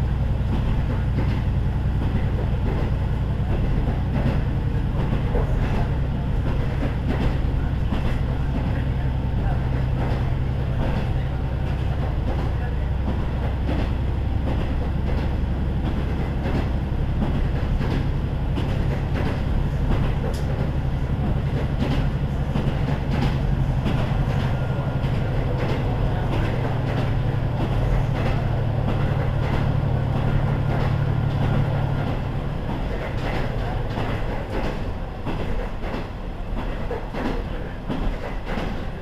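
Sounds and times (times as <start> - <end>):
wheels clicking over rail joints: 9.7 - 39.0.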